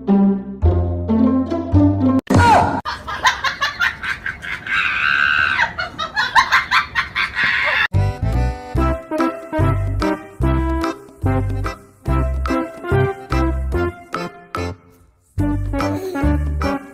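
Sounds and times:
music: 0.0s - 2.3s, 7.9s - 16.9s
shrill screaming and cackling: 2.4s - 7.9s.

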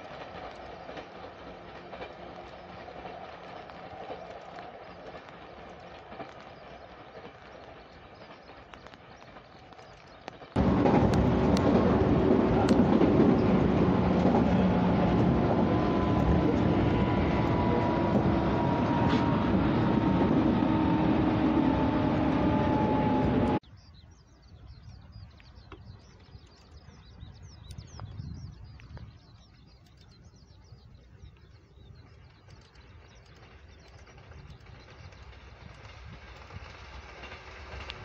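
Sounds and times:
electric train running with whine: 0.0s - 23.6s
faint distant rumble: 0.0s - 23.6s.

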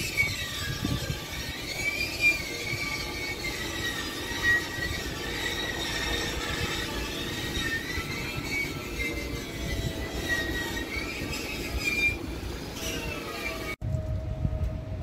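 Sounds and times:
low rumble: 13.8s - 15.0s.

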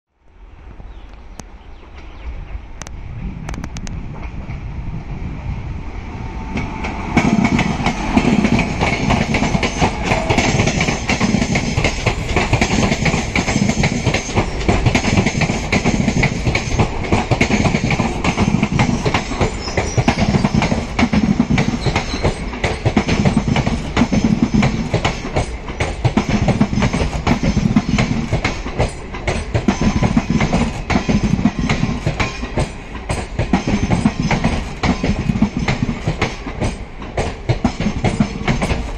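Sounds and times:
train passing: 0.3s - 38.9s
wheels clattering over rail joints: 6.6s - 38.9s.

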